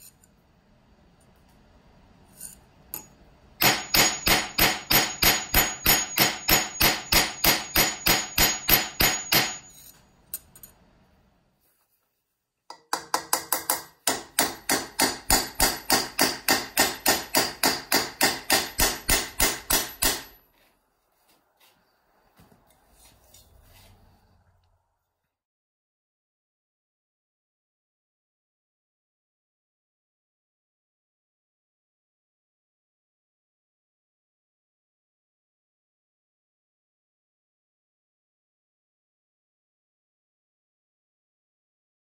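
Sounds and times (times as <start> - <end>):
hammer striking metal: 3.0 - 9.8, 12.7 - 20.4.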